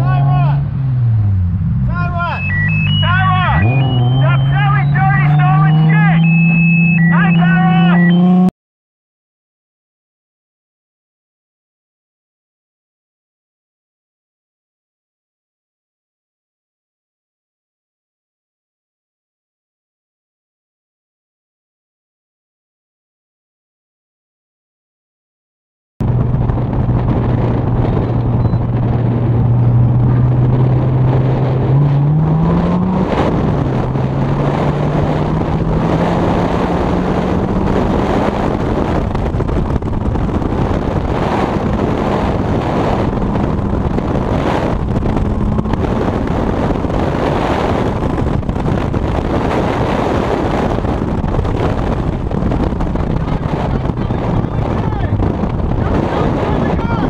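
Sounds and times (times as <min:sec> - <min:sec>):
vehicle engine pulling: 0:00.0 - 0:08.5, 0:26.0 - 0:57.0
wind and road noise: 0:00.0 - 0:08.5, 0:26.0 - 0:57.0.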